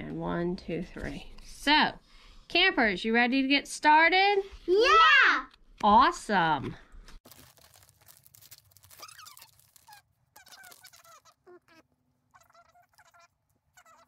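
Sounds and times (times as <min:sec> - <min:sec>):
sped-up high-pitched chattering voices: 0:10.4 - 0:14.0.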